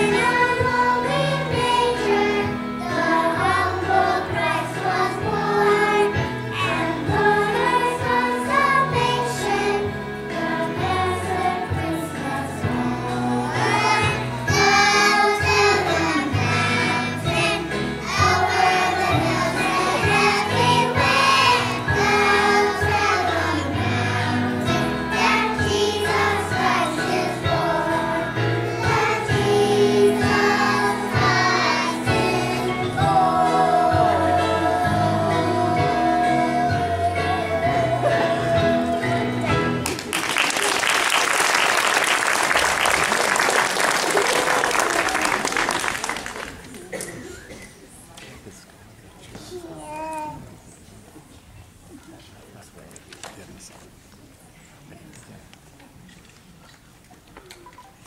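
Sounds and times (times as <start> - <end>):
children singing in unison: 0.0 - 39.6
instrumental accompaniment with bass: 0.0 - 40.1.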